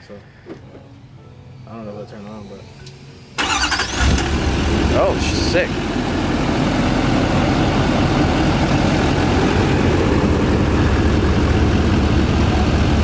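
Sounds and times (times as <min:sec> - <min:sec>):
pickup engine idling: 0:03.4 - 0:13.0.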